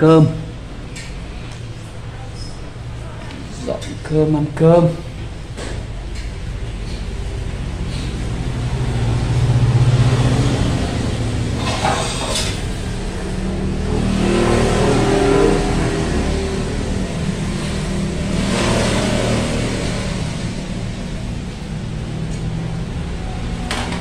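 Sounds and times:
vehicle engine running: 5.1 - 24.0.

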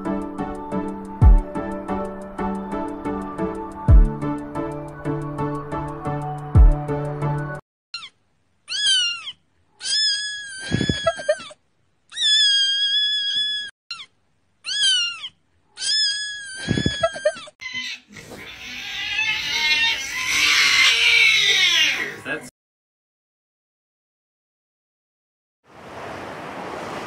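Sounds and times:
kitten meowing: 8.7 - 22.2.

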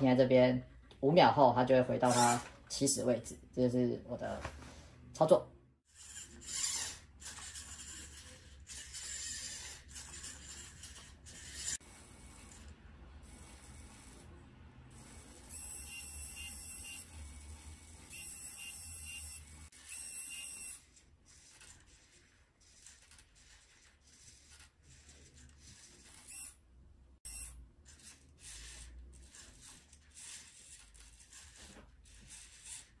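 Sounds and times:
servo motors whirring: 5.9 - 14.3, 14.9 - 26.6
high-pitched motor whine: 15.0 - 20.8.

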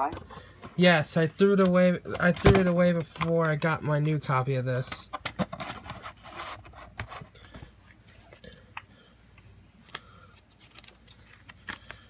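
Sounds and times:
paper rustling: 9.8 - 12.0.

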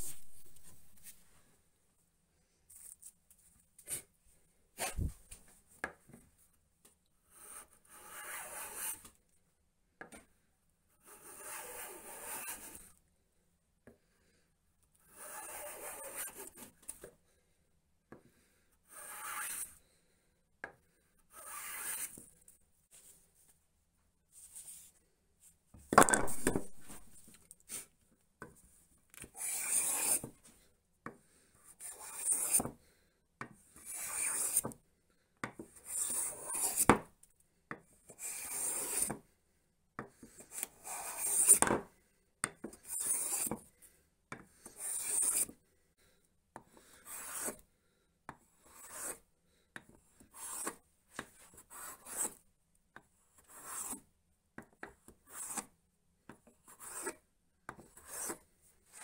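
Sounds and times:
hand plane hissing strokes: 18.9 - 19.6, 29.4 - 30.2, 40.8 - 41.6, 47.0 - 47.6, 48.8 - 49.1.

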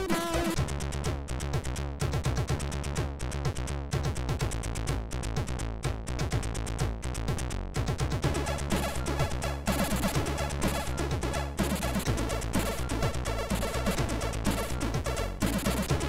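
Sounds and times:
repeating bass line: 0.0 - 16.0
chiptune music: 8.2 - 16.0.

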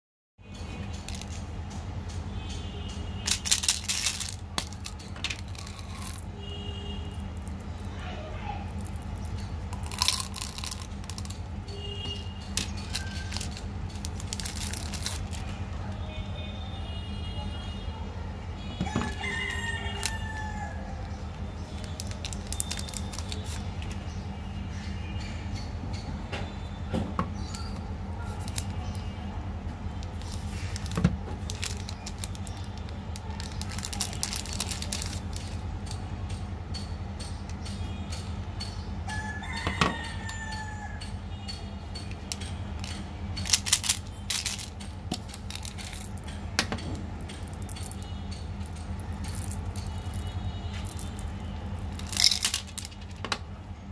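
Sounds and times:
candy wrapper crinkling: 3.2 - 6.3, 8.7 - 11.5, 12.1 - 15.5, 21.8 - 24.0, 28.3 - 28.8, 30.0 - 35.6, 42.8 - 46.3, 48.6 - 53.2.

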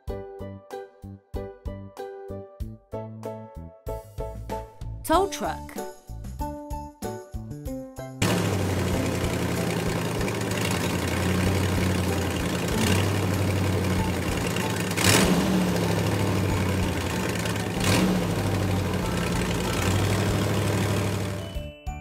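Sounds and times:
heavy truck engine running: 8.2 - 21.7.

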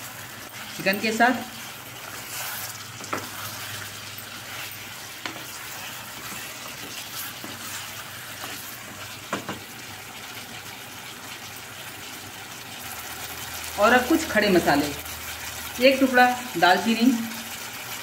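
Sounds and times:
chicken and onions sizzling: 0.0 - 18.0
wooden spatula knocking pot: 3.0 - 3.3, 9.2 - 9.7.

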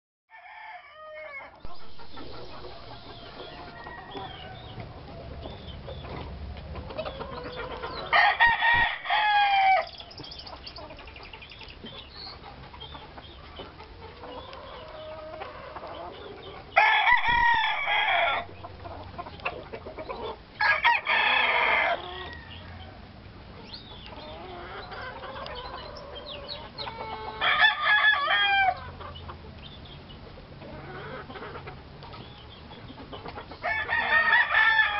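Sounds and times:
rooster crowing: 0.3 - 1.6, 2.7 - 4.8, 8.1 - 9.9, 16.8 - 18.5, 20.6 - 23.0, 27.0 - 28.8, 33.6 - 34.9
chickens clucking softly: 1.2 - 8.8, 9.8 - 34.9.

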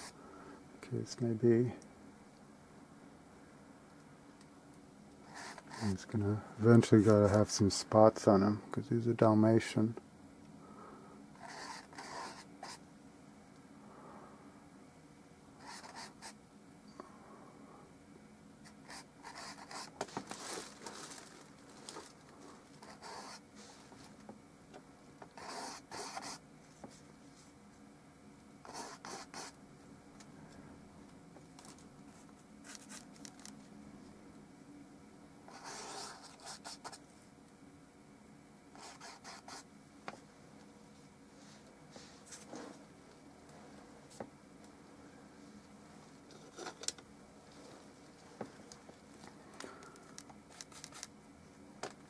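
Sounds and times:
low steady hum: 0.0 - 52.0.

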